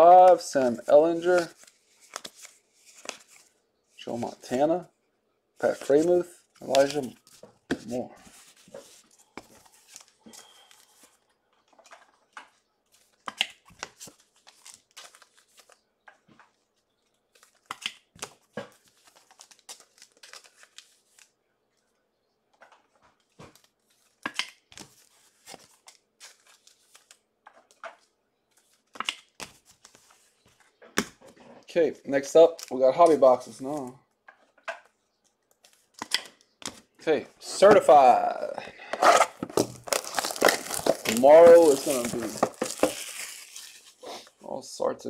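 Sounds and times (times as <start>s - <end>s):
wrapper crinkling and tearing: 39.0s - 44.0s.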